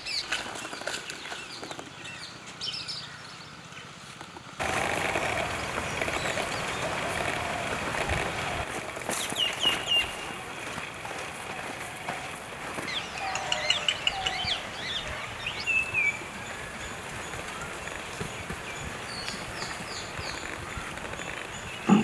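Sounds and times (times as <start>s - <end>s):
outdoor background noise: 0.0s - 22.0s
birds chirping: 4.6s - 22.0s.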